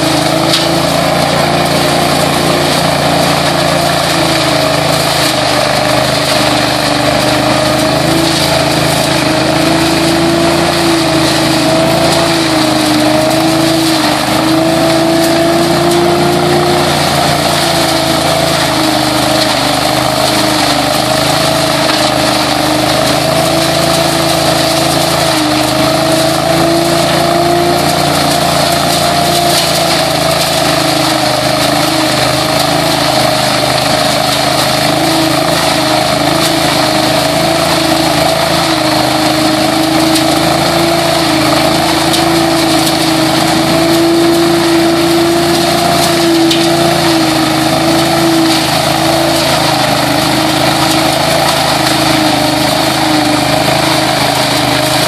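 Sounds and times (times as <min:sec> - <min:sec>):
debris loader engine droning: 0:00.0 - 0:55.0
rush of air sucking leaves: 0:00.0 - 0:55.0.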